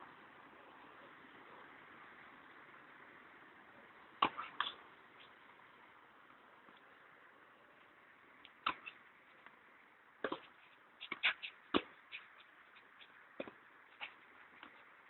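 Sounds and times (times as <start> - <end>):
ball bouncing on court: 4.2 - 4.8, 8.6 - 9.0, 10.2 - 12.2, 13.4 - 14.8
racket striking tennis ball: 4.2 - 4.8, 8.6 - 9.0, 10.2 - 12.3, 13.4 - 14.8.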